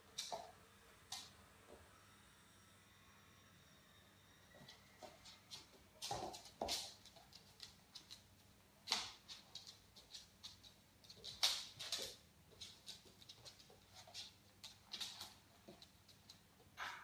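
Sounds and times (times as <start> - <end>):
puppy scampering on wooden floor: 4.7 - 17.0.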